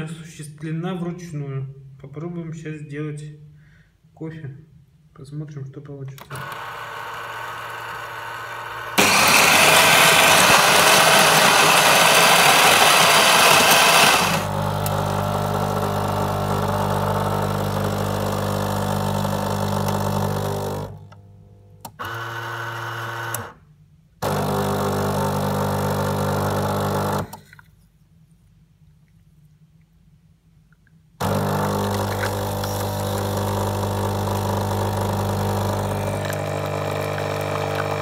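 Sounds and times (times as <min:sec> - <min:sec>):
coffee grinder grinding beans: 0:06.3 - 0:21.0, 0:21.9 - 0:23.5, 0:24.2 - 0:27.4, 0:31.2 - 0:38.0
motor and water pump humming: 0:06.3 - 0:21.2, 0:24.2 - 0:27.4, 0:31.2 - 0:38.0.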